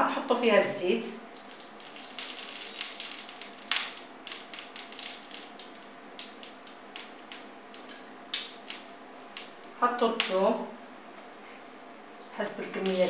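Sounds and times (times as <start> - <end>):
oil hissing in pan: 1.3 - 9.7, 12.8 - 13.0
oil clicking and crackling: 1.3 - 10.4.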